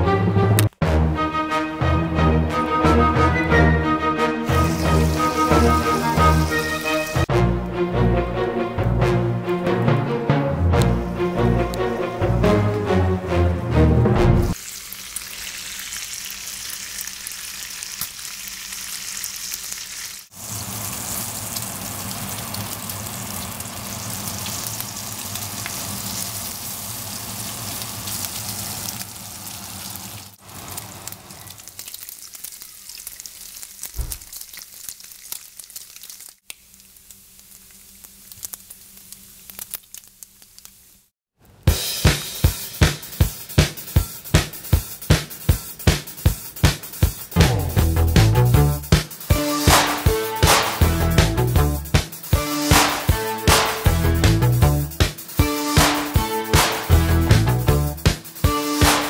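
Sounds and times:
bacon sizzling on a griddle: 4.4s - 7.3s, 14.5s - 41.1s.

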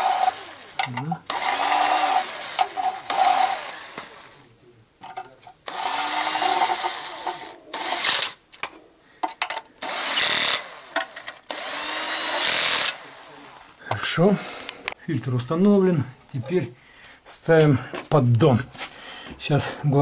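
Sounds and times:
cordless drill motor whine: 0.0s - 4.4s, 5.7s - 8.4s, 9.8s - 13.5s
drill clicks: 0.0s - 4.4s, 5.7s - 13.5s.

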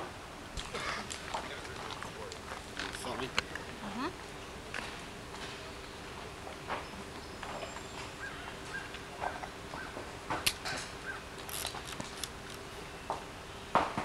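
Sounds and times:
hooves crunching on gravel: 0.6s - 3.8s.

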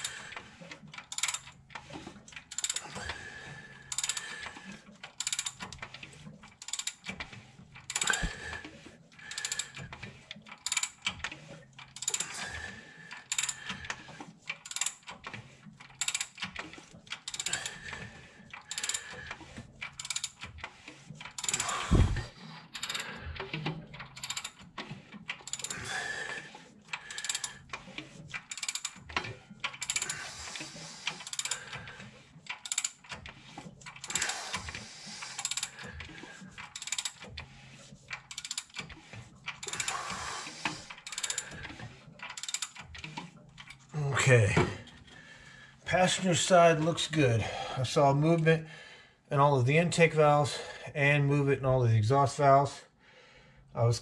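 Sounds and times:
ratchet wrench clicking: 1.1s - 1.5s, 2.5s - 2.9s, 3.9s - 4.3s, 5.2s - 5.5s, 7.9s - 8.3s, 10.6s - 11.0s, 12.0s - 12.3s, 13.3s - 13.6s, 14.6s - 15.0s, 16.0s - 16.4s, 20.0s - 20.4s, 21.4s - 21.9s, 22.8s - 23.0s, 24.2s - 24.6s, 25.4s - 25.8s, 27.0s - 27.5s, 28.5s - 29.0s, 29.8s - 30.3s, 31.2s - 31.7s, 32.5s - 33.0s, 35.3s - 35.8s, 36.8s - 37.2s, 38.3s - 38.8s, 39.6s - 41.5s, 42.3s - 42.8s.

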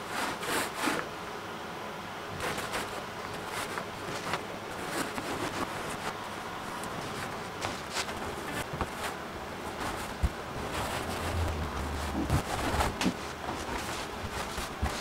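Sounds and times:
foam paint roller rasping: 2.4s - 15.0s
low hum: 10.2s - 14.2s.

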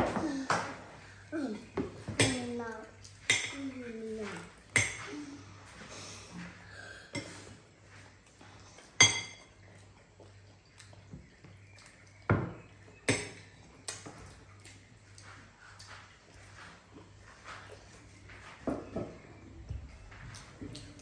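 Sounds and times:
cutlery clinking against bowls: 1.5s - 3.7s, 4.3s - 5.1s, 8.9s - 9.6s.

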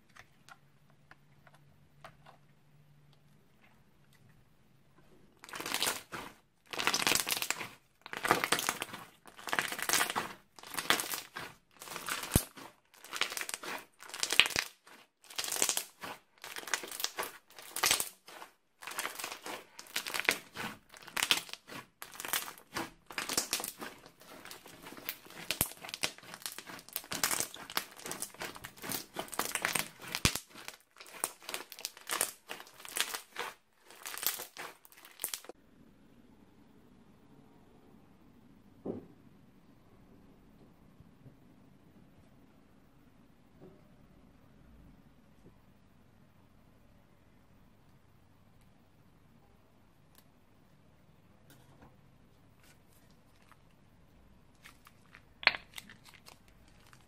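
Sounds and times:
crunchy slime squishing: 5.4s - 35.6s, 52.5s - 57.0s.

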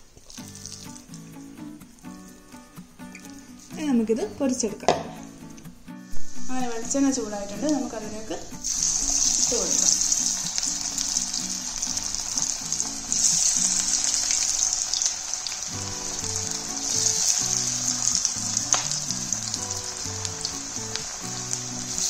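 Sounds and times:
food deep-frying in oil: 0.0s - 1.5s, 8.6s - 22.0s
soft background music: 0.0s - 22.0s.

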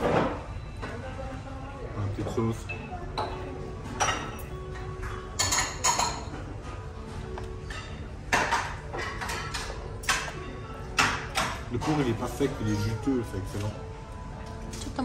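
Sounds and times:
dishes and utensils clattering: 0.0s - 1.0s, 2.0s - 13.7s
background music: 0.0s - 15.0s.

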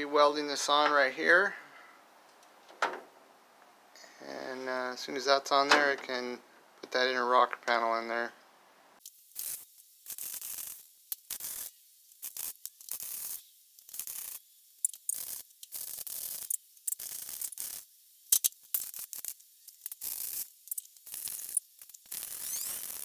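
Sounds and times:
welder crackling hiss: 9.0s - 23.0s.

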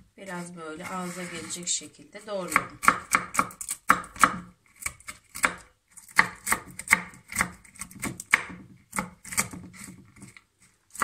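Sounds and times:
knife chopping on wooden board: 2.5s - 10.3s.

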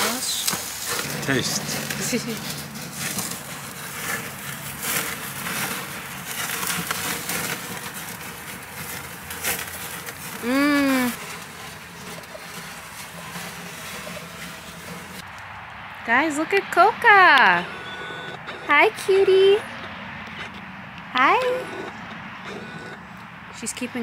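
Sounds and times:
outdoor background noise: 0.0s - 24.0s
woman humming mmm while eating: 10.4s - 11.2s.

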